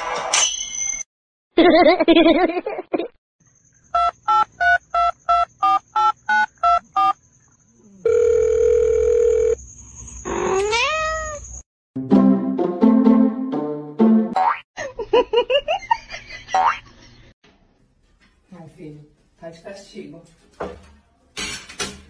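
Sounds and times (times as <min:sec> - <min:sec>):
steady dial tone: 0:08.0 - 0:09.6.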